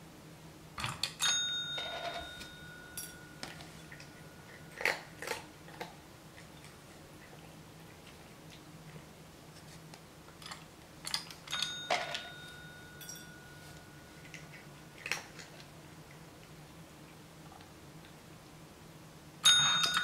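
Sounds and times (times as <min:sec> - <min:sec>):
service bell ding: 0:01.2 - 0:03.6, 0:11.5 - 0:14.1, 0:19.4 - 0:20.0.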